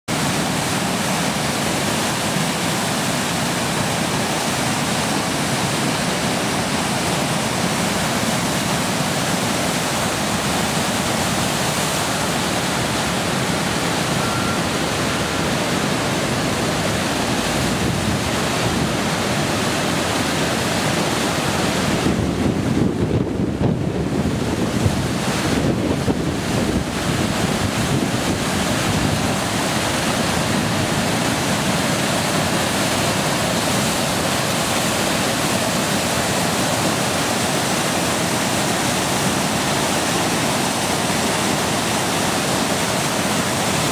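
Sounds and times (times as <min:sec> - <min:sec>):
floodwater rushing over dam: 0:00.1 - 0:43.9
wind buffeting microphone: 0:21.4 - 0:32.8.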